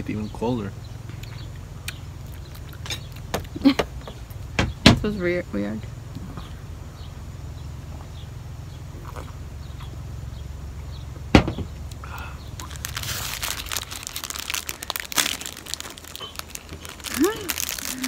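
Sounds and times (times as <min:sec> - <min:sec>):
low steady rumble: 0:00.0 - 0:18.0
plastic wrapper crinkling: 0:12.6 - 0:18.0.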